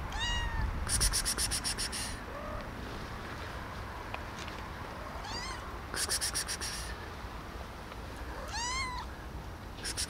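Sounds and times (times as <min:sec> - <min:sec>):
cat meowing: 0:00.1 - 0:00.7, 0:02.3 - 0:02.7, 0:05.1 - 0:05.6, 0:08.4 - 0:09.1.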